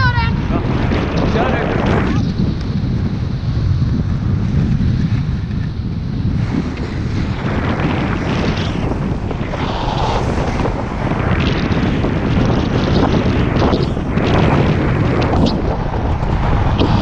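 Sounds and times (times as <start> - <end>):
wind buffeting microphone: 0.0 - 17.0
skis scraping over snow: 3.6 - 17.0.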